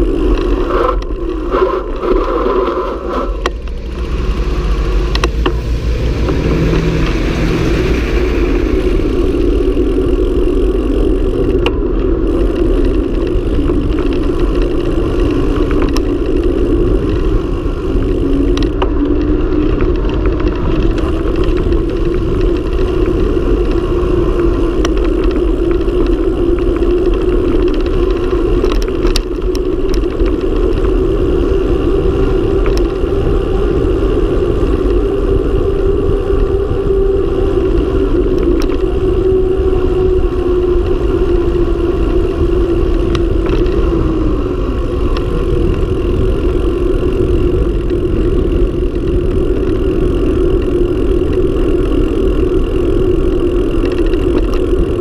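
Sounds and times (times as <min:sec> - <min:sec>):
bike tyre hum on asphalt: 0:00.0 - 0:55.0
wind rumble on microphone: 0:00.0 - 0:55.0
truck engine: 0:03.0 - 0:18.6.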